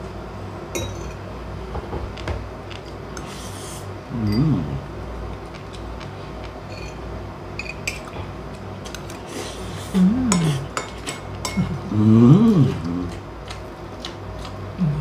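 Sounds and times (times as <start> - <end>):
man humming mmm: 4.1 - 5.0, 9.6 - 10.8, 11.6 - 13.2, 14.8 - 15.0.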